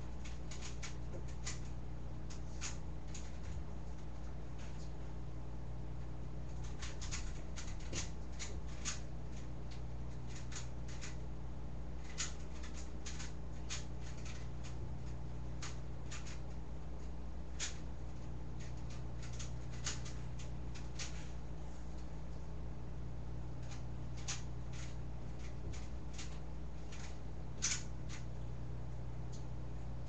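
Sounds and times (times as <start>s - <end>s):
steady low hum: 0.0s - 30.0s
rubik's cube plastic clicks: 12.0s - 14.5s, 15.6s - 16.4s, 23.6s - 28.2s.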